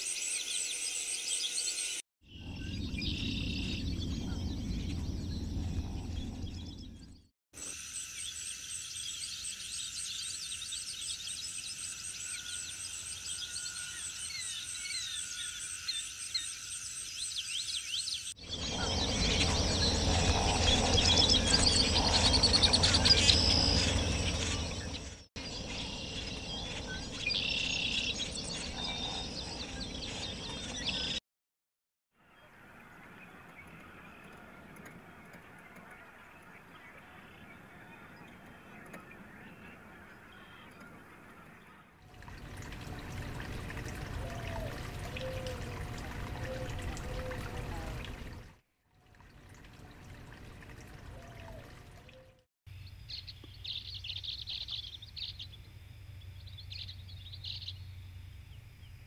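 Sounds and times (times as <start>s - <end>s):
low rumble: 2.4s - 7.3s
insects trilling: 7.6s - 17.7s
birds chirping and calling: 17.2s - 31.2s.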